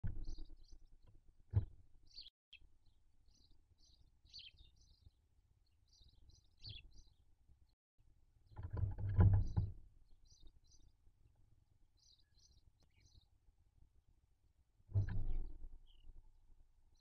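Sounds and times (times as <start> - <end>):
faint bird chirps: 0.0 - 1.1, 2.0 - 7.3, 12.0 - 13.4, 15.0 - 16.2.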